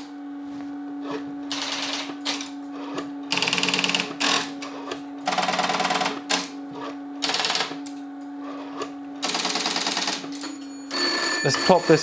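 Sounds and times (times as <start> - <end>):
low dial tone: 10.4 - 12.0.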